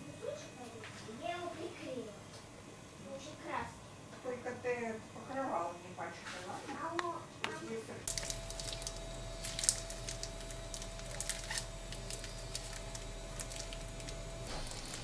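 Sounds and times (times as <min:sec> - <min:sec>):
faint steady hum: 0:00.0 - 0:15.0
small crackles: 0:08.1 - 0:15.0
wet squishing: 0:08.1 - 0:15.0.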